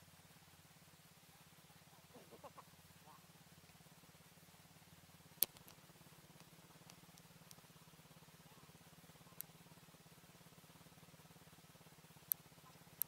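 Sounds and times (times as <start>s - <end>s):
atv engine idling: 0.0s - 13.0s
sharp clicks: 5.4s - 7.7s.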